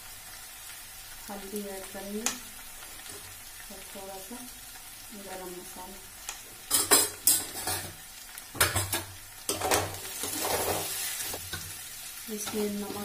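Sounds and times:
oil sizzling: 0.0s - 13.0s
metal spoon scraping a pan: 6.7s - 8.0s, 8.6s - 11.8s.

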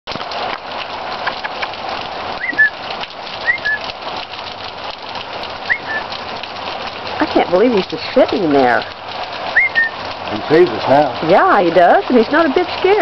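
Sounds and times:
rain falling: 0.1s - 13.0s
bird calling: 2.4s - 2.8s, 3.4s - 3.9s, 5.7s - 6.1s, 8.8s - 10.0s.

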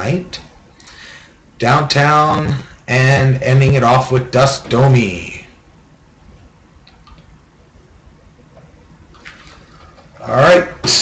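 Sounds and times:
man speaking: 0.0s - 0.5s, 1.6s - 5.6s, 10.2s - 11.0s.

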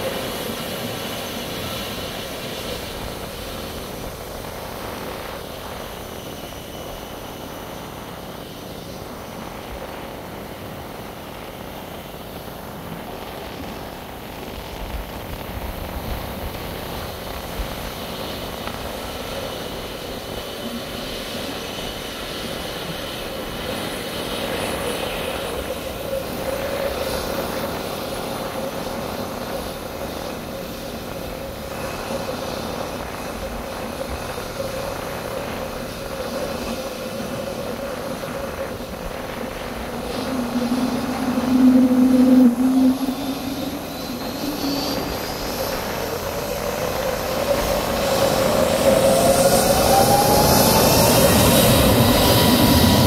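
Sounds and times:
jet engines idling drone: 0.0s - 53.0s
deep hum: 39.7s - 45.6s.

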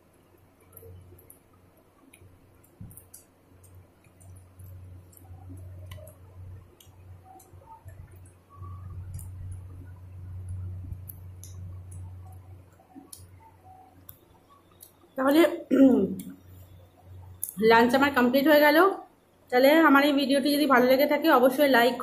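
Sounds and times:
low hum: 0.0s - 20.2s
mouth clicks and smacks chewing: 2.0s - 15.0s.

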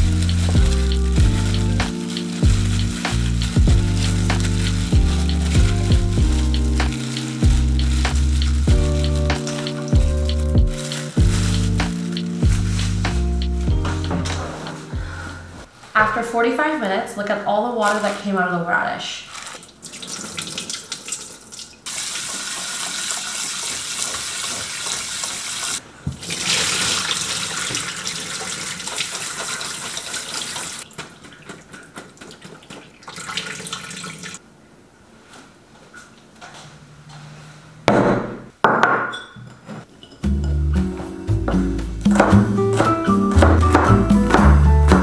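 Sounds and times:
water running from sprayer: 0.0s - 14.0s, 21.9s - 30.9s
handling noises: 0.2s - 16.2s.

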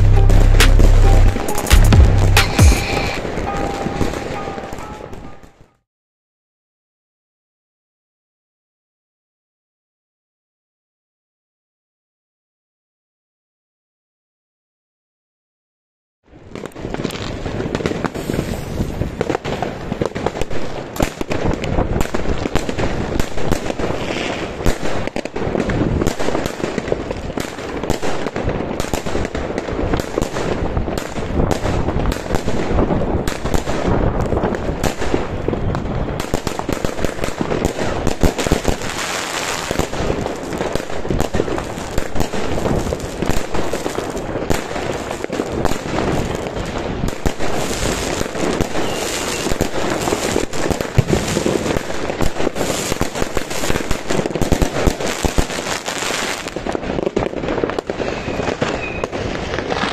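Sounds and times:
firework shell bursts: 0.6s - 5.0s
fireworks launch thumps: 50.9s - 51.7s.

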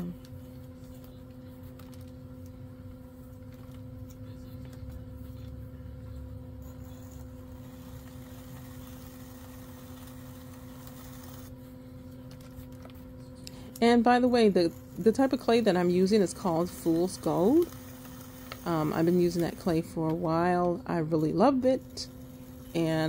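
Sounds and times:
pottery wheel motor humming: 0.0s - 23.0s
trimming tool cutting clay: 13.9s - 19.8s.

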